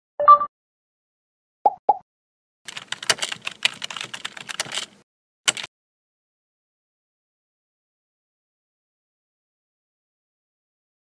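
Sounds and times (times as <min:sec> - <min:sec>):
computer keyboard typing: 0:02.7 - 0:05.7.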